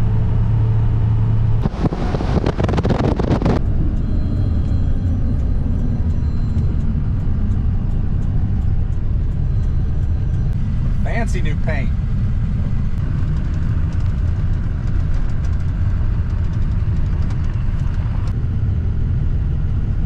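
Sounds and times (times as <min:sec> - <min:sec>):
vehicle engine humming: 0:00.0 - 0:20.0
loud rushing noise: 0:01.6 - 0:03.7.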